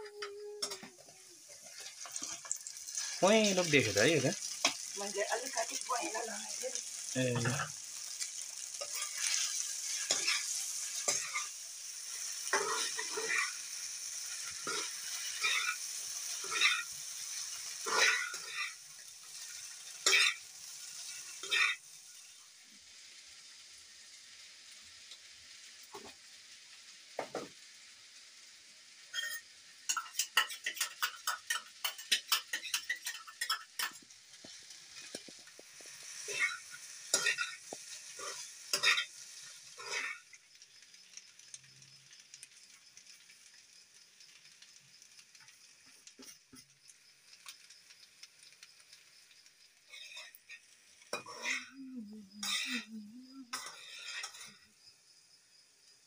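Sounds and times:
pasta sizzling in a frying pan: 0:00.0 - 0:56.0
spoon scraping and clinking on pan: 0:01.6 - 0:05.0, 0:07.4 - 0:13.6, 0:14.3 - 0:20.4, 0:29.1 - 0:40.3, 0:49.9 - 0:51.7, 0:53.5 - 0:54.7.

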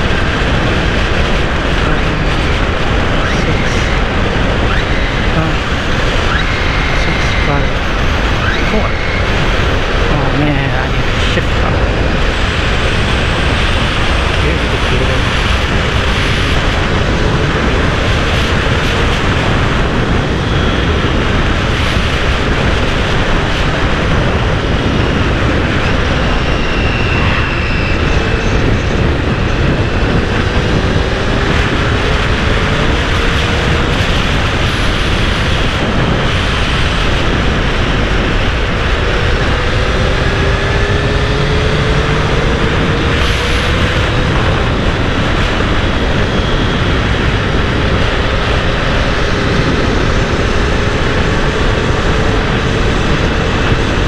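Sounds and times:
wind rushing over microphone: 0:00.0 - 0:54.0
motorcycle engine revving up: 0:38.6 - 0:45.0.

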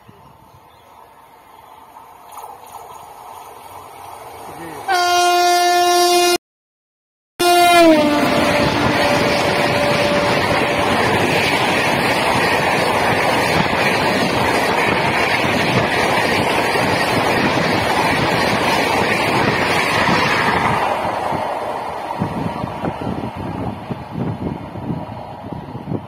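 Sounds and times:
train horn: 0:04.9 - 0:06.4, 0:07.4 - 0:11.2
train wheels rumbling on rails: 0:08.0 - 0:26.0.

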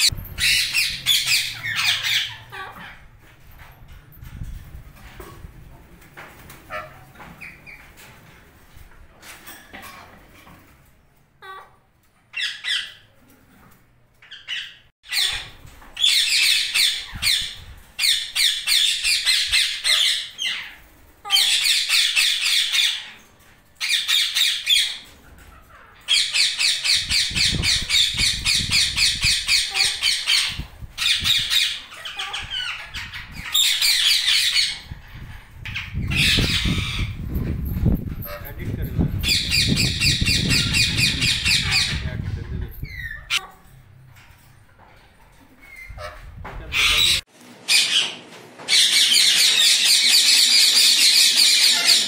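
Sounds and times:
parakeets squawking: 0:00.0 - 0:03.2, 0:11.4 - 0:13.0, 0:14.2 - 0:43.7, 0:45.6 - 0:52.0.

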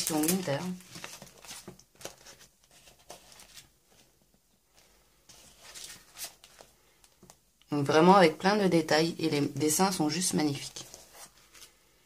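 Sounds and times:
paper sheets rustling and sliding: 0:00.0 - 0:06.7, 0:10.6 - 0:11.9.

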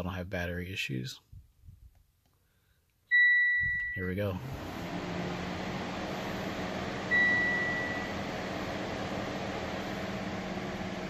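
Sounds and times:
high electronic warning beep: 0:03.1 - 0:04.0, 0:07.1 - 0:08.1
steady low hum: 0:04.4 - 0:11.0.

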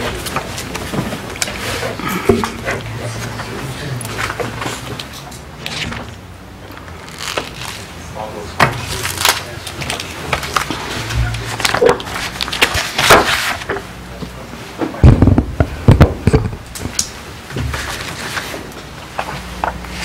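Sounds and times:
faint voices: 0:00.0 - 0:12.5
heavy low thumps: 0:15.0 - 0:17.0.

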